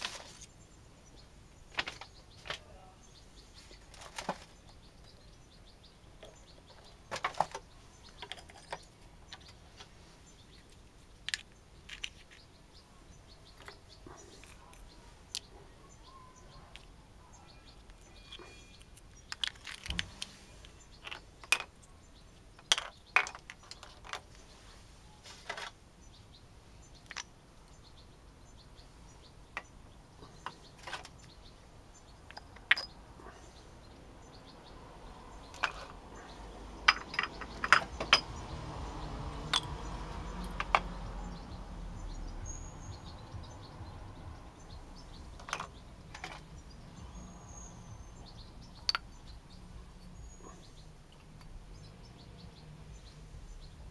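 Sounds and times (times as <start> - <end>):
small hard pieces clinking in metal tray: 36.9 - 38.2.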